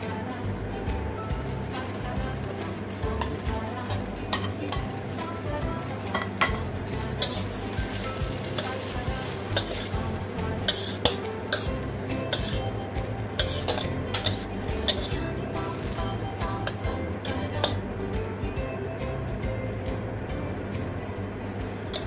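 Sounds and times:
food sizzling in a pan: 0:00.0 - 0:18.1
spatula scraping a pan: 0:06.0 - 0:15.9.

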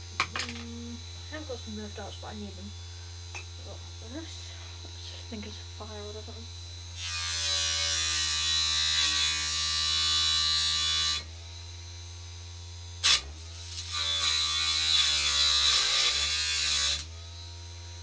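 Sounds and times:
electric motor humming: 0:00.0 - 0:18.0
wood grinding against saw blade: 0:07.0 - 0:11.3, 0:13.0 - 0:17.2.

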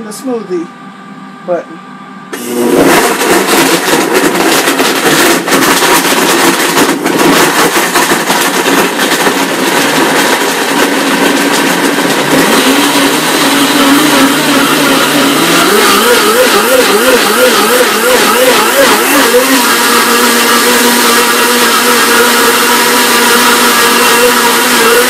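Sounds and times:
blender motor churning: 0:02.3 - 0:25.0.

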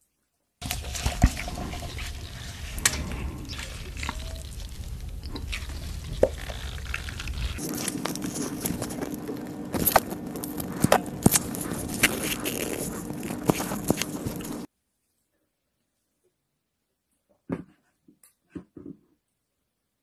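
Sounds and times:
squeeze bottle clicking and crackling: 0:00.6 - 0:14.7.

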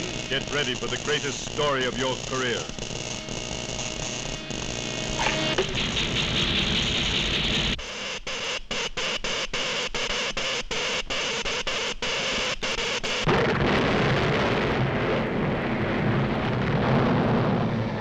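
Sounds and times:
electric current crackling: 0:00.0 - 0:07.8
deep earthquake rumble: 0:13.3 - 0:18.0.

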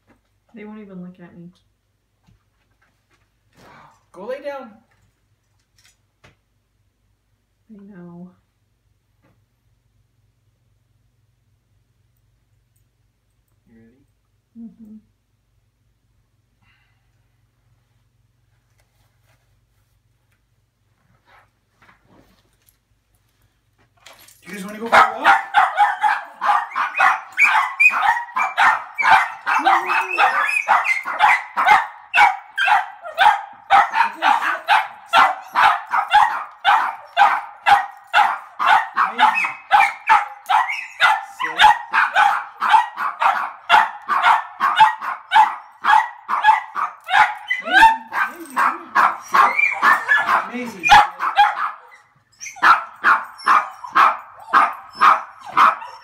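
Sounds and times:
small dogs barking and yipping: 0:24.5 - 0:56.0.

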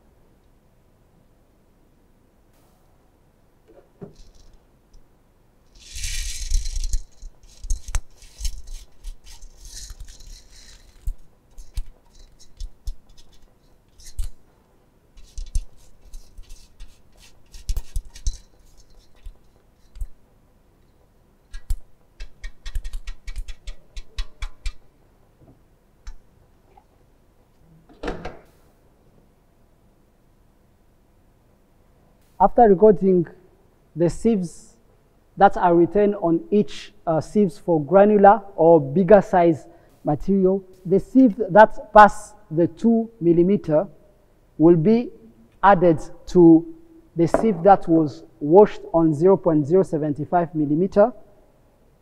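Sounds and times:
gravel rattling into metal pan: 0:05.7 - 0:12.5
steel sieves clinking: 0:05.7 - 0:12.6.

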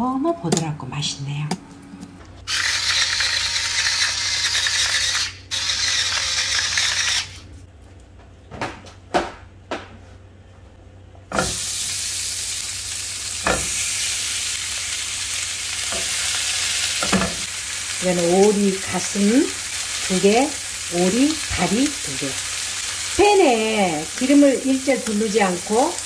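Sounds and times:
meat sizzling in a frying pan: 0:11.4 - 0:26.0.

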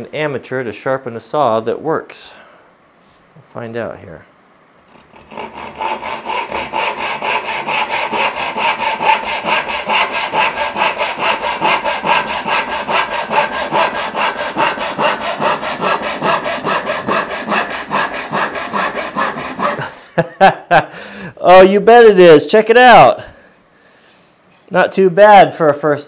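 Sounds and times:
hand saw cutting wood: 0:04.9 - 0:20.0.

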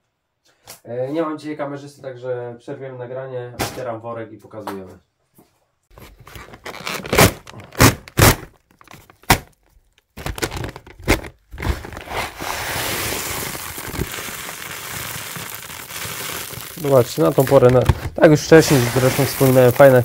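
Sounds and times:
sack rustling: 0:06.1 - 0:08.3, 0:11.2 - 0:20.0
sack knocks and thuds: 0:06.7 - 0:08.5, 0:10.2 - 0:20.0.

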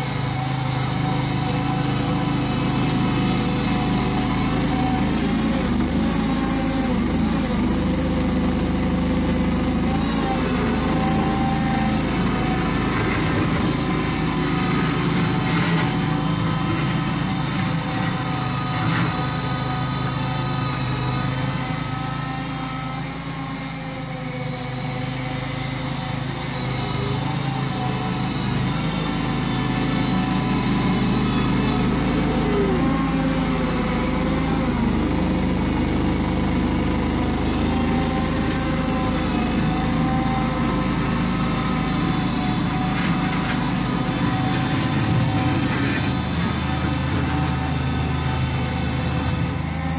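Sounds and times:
loader engine running: 0:00.0 - 0:49.9.

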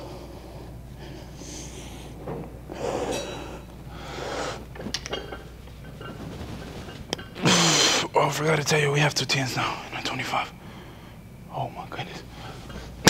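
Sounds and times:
person breathing hard: 0:00.0 - 0:04.7.

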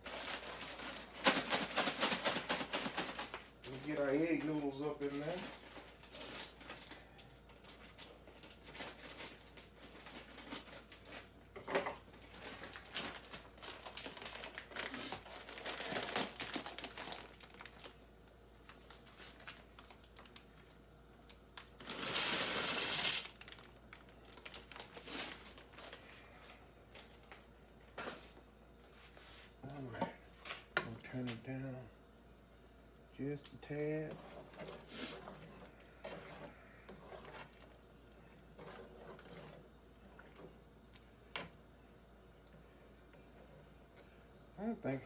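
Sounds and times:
plastic bag crinkling: 0:00.0 - 0:11.3, 0:12.1 - 0:18.0, 0:18.6 - 0:26.2
noodles sliding into pot: 0:21.8 - 0:23.3.

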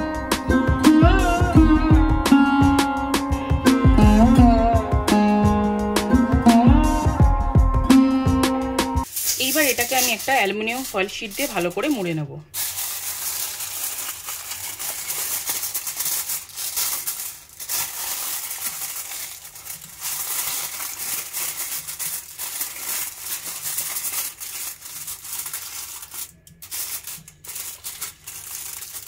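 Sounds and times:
aluminium foil crinkling: 0:09.0 - 0:29.0.

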